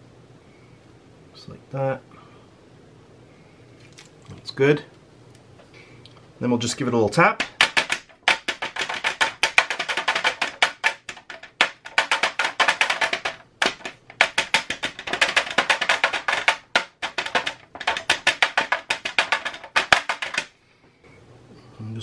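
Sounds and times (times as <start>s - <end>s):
metal pan rapped on countertop: 7.4s - 20.5s.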